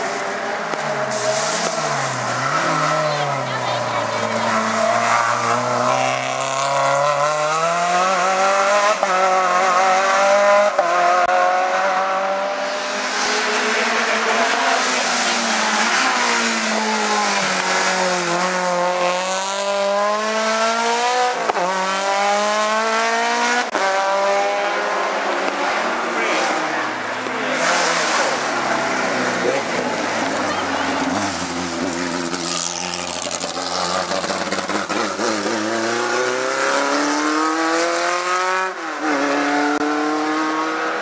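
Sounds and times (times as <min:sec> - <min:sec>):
race car engines revving: 0:00.0 - 0:41.0.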